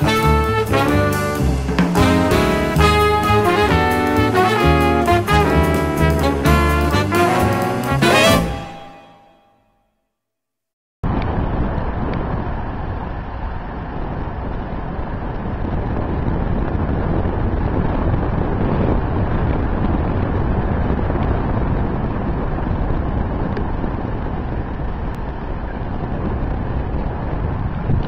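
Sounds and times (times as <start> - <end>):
wind buffeting microphone: 11.0 - 28.0.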